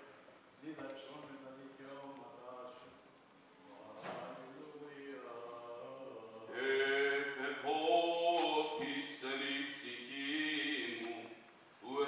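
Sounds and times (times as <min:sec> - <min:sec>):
man chanting: 0:03.6 - 0:12.0.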